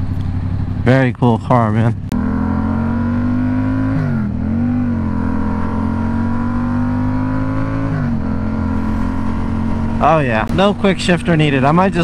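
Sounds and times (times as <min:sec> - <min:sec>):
motorcycle engine accelerating: 0:00.0 - 0:12.0
wind rumble: 0:04.1 - 0:12.0.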